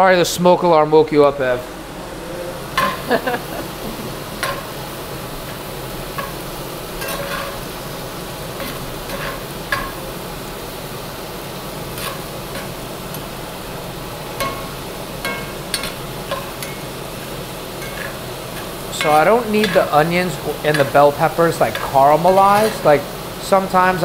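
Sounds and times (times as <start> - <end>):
vegetables sizzling in a skillet: 1.6 - 24.0
utensil scraping a pan: 6.0 - 7.8, 8.6 - 10.1, 11.8 - 13.2, 14.4 - 23.1.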